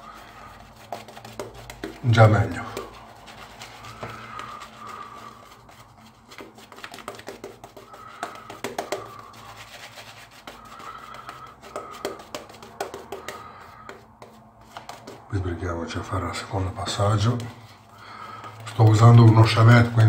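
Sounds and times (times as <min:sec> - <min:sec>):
shaving brush scratching lather: 0:00.0 - 0:13.3, 0:18.6 - 0:20.0.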